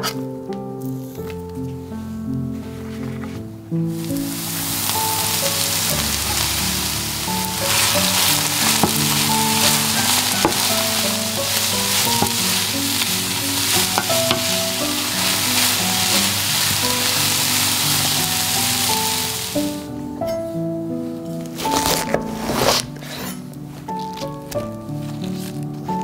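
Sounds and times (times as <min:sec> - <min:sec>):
onions and mushrooms sizzling: 0:03.9 - 0:20.1.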